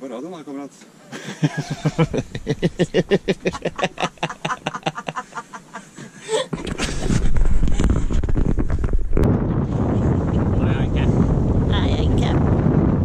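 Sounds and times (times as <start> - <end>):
hearty laughter: 1.1 - 7.2
wind rumble on microphone: 1.6 - 3.8, 6.5 - 13.0.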